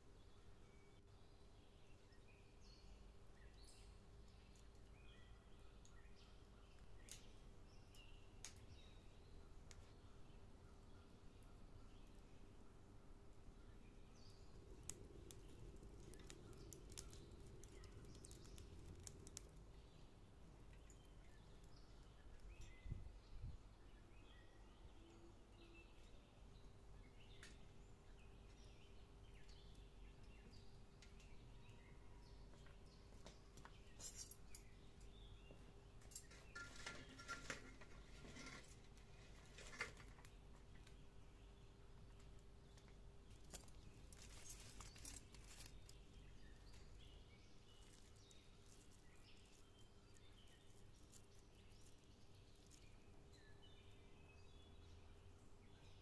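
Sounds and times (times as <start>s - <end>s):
small clicks and taps: 14.7s - 19.7s.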